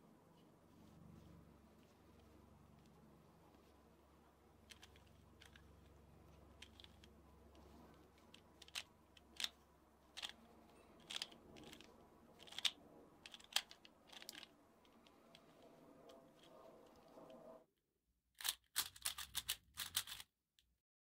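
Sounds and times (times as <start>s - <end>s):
plastic puzzle cube clicking: 4.6s - 15.6s, 18.4s - 20.3s.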